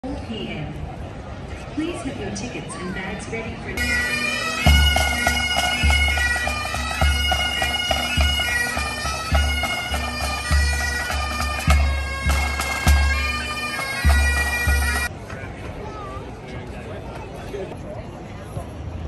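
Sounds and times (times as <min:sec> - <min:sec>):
bagpipes playing: 0:03.8 - 0:15.1.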